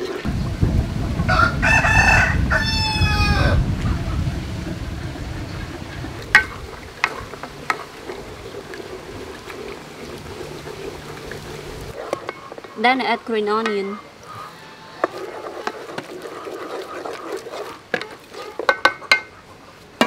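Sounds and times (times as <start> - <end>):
rooster crowing: 1.3 - 3.7.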